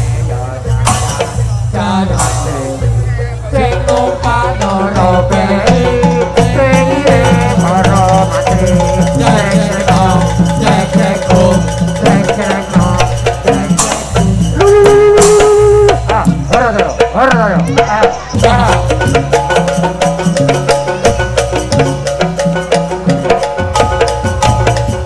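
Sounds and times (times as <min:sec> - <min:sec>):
drums beating fast rhythm: 0:00.0 - 0:25.0
rattling percussion: 0:00.0 - 0:25.0
wavering melody line: 0:00.0 - 0:25.0.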